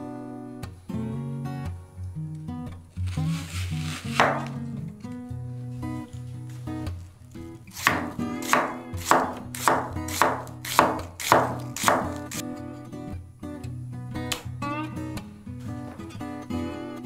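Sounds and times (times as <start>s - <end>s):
knife chopping onion on board: 3.3s - 4.6s, 7.8s - 12.4s.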